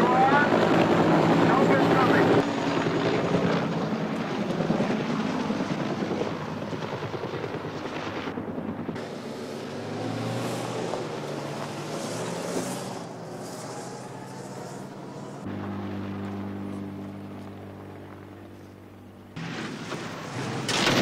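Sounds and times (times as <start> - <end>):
helicopter rotor beating: 0.0 - 21.0
car engine running: 12.6 - 19.4.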